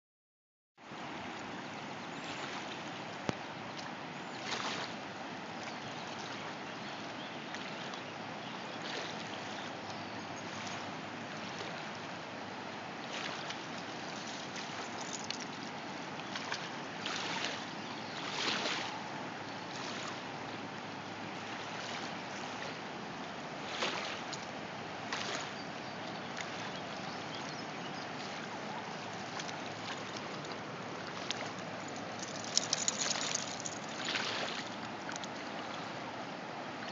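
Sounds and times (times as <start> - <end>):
river water rushing: 0.8 - 36.9
dog splashing in water: 29.2 - 35.3.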